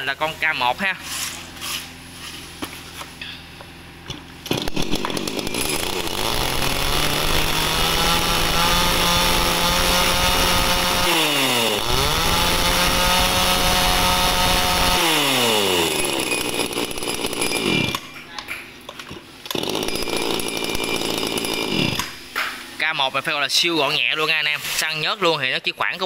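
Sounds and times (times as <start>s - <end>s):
chainsaw revving: 4.4s - 18.2s, 19.5s - 22.4s.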